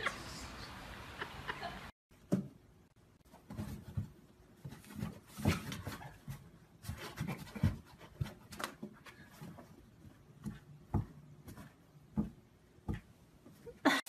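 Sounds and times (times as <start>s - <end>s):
cat paws tapping cardboard and paper: 3.3s - 13.2s.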